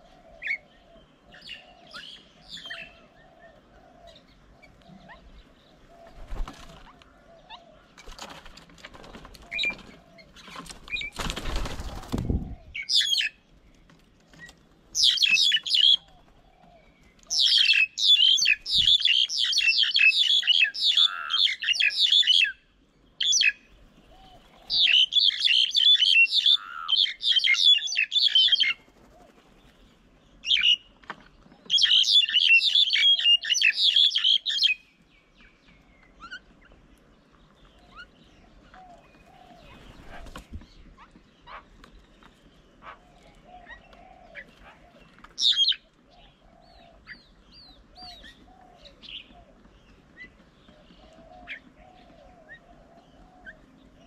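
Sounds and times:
birds chattering calls: 0:00.0 - 0:54.0
wings flapping: 0:06.0 - 0:07.0, 0:08.0 - 0:12.6, 0:28.4 - 0:30.0, 0:39.2 - 0:41.1.

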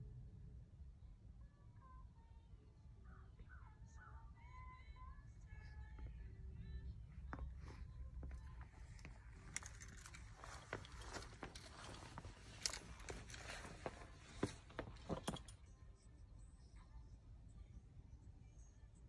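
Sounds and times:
faint rustling: 0:05.6 - 0:15.8
light clicks and knocks of metal gear: 0:07.4 - 0:15.7.

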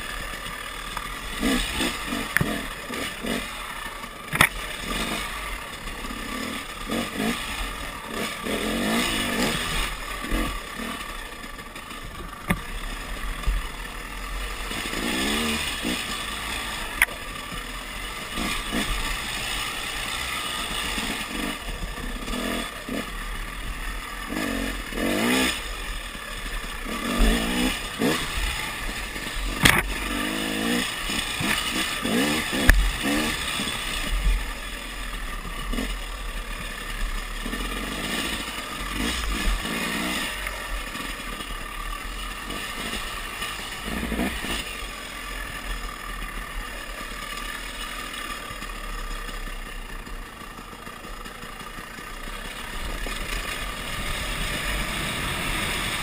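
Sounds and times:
dirt bike engine revving: 0:00.0 - 0:56.0
steady rushing noise: 0:51.4 - 0:56.0.

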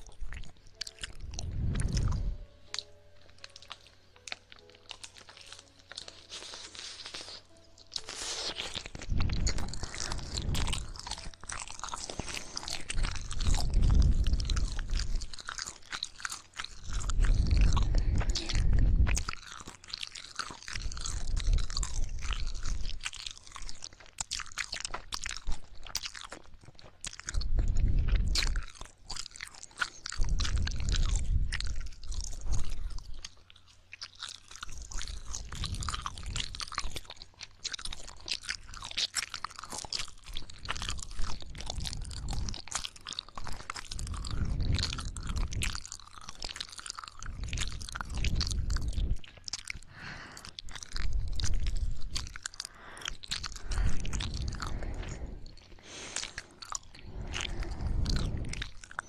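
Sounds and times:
wet tongue and lip clicks: 0:00.0 - 0:59.0
dull low swells: 0:01.1 - 0:02.7, 0:16.9 - 0:19.3, 0:53.2 - 0:59.0.

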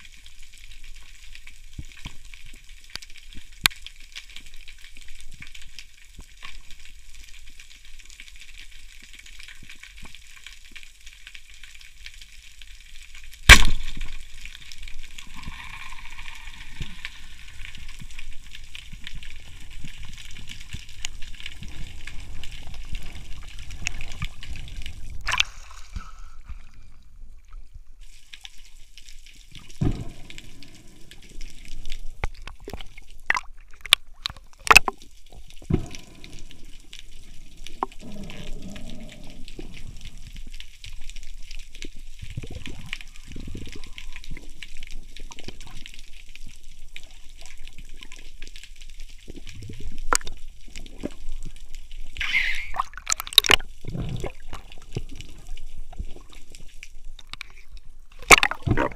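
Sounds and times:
low rumbling water: 0:13.3 - 0:58.9
speargun firing crack: 0:13.5 - 0:13.9
knocks and splashes: 0:13.5 - 0:14.2, 0:52.8 - 0:55.1, 0:58.2 - 0:58.9.

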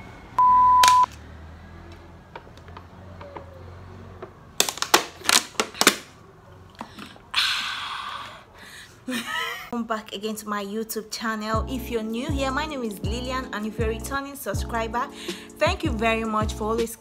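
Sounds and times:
single-pitched beep: 0:00.4 - 0:01.1
plastic water bottle crackling: 0:04.5 - 0:07.2.

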